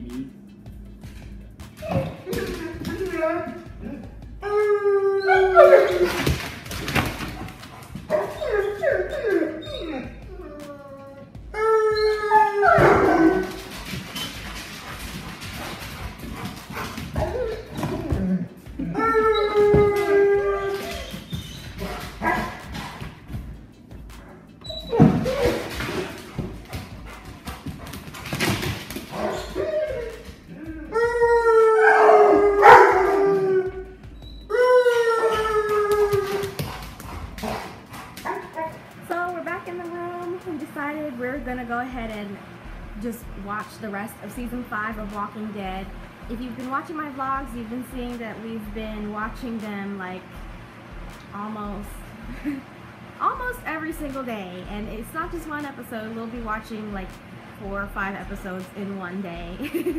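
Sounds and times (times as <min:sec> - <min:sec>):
dog whining: 0:01.8 - 0:14.6, 0:16.8 - 0:23.1, 0:24.2 - 0:26.5, 0:29.1 - 0:38.8.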